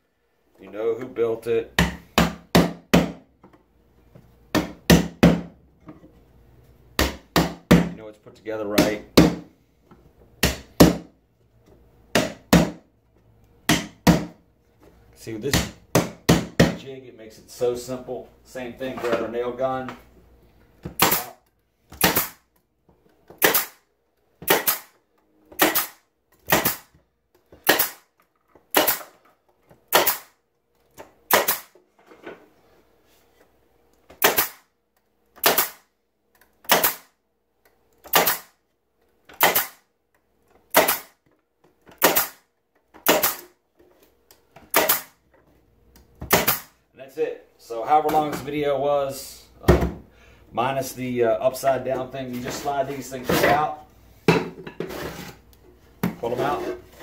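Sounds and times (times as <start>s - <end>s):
nail gun firing into wood: 21.0s - 21.3s, 22.0s - 22.4s, 23.4s - 23.8s, 24.4s - 25.0s, 25.6s - 27.0s, 27.6s - 28.1s, 28.7s - 29.1s, 29.9s - 30.4s, 31.2s - 31.8s, 34.2s - 34.7s, 35.4s - 35.9s, 36.6s - 37.1s, 38.0s - 38.6s, 39.3s - 39.8s, 40.7s - 41.2s, 42.0s - 42.4s, 43.0s - 43.5s, 44.7s - 45.2s, 46.3s - 46.8s.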